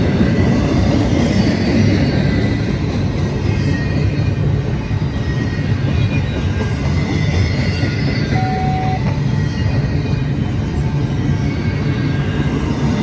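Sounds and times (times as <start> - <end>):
freight train wheels rumbling: 0.0 - 13.0
high wheel squeal: 3.6 - 12.4.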